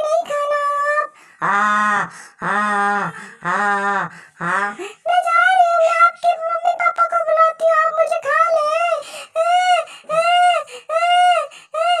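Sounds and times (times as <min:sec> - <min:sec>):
high-pitched cartoon voice singing: 0:03.4 - 0:12.0.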